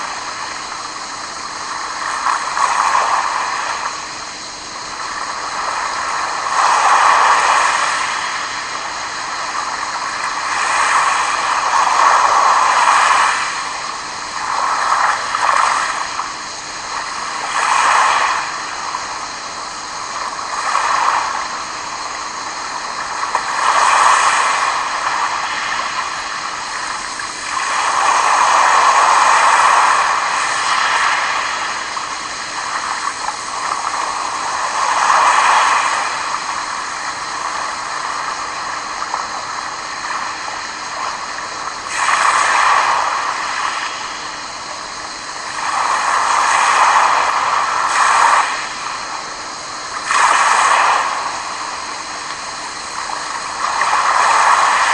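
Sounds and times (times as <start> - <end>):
waves washing over pebbles: 0.0 - 54.9.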